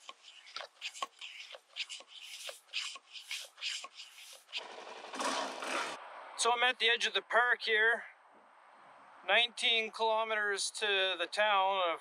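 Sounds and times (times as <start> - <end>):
hand pump strokes hissing: 0.0 - 4.6.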